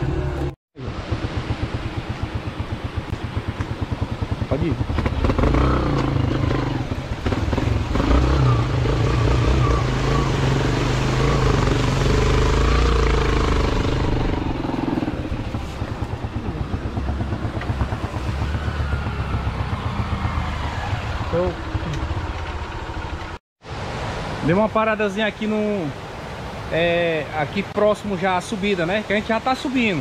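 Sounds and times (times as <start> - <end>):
vehicle engine running under load: 0.0 - 23.4.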